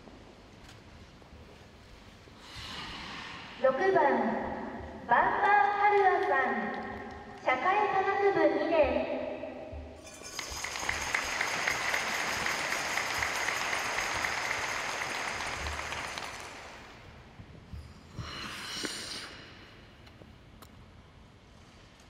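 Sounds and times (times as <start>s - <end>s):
audience applauding: 10.2s - 17.1s.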